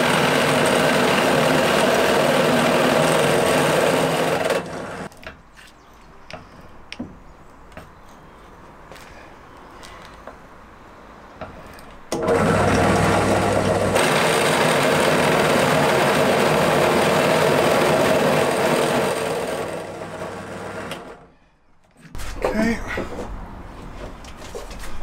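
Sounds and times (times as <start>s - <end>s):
drill press motor humming: 0.0s - 5.1s, 12.1s - 21.2s.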